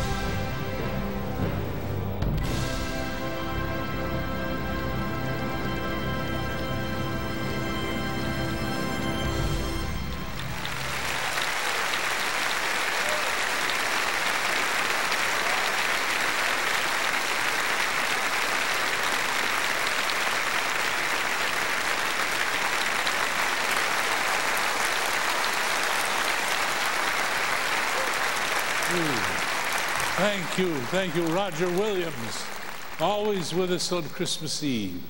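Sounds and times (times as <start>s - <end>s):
large audience applauding: 9.3s - 34.9s.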